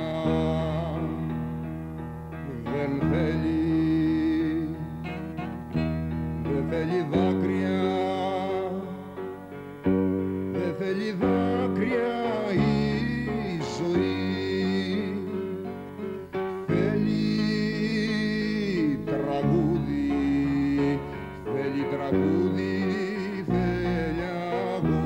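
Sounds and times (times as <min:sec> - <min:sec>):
instrumental accompaniment: 0:00.0 - 0:25.0
person singing long notes: 0:10.6 - 0:25.0.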